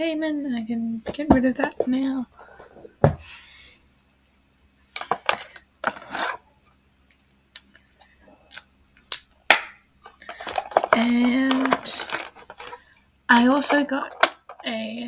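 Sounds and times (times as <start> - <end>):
packaging rustling: 10.0 - 12.9.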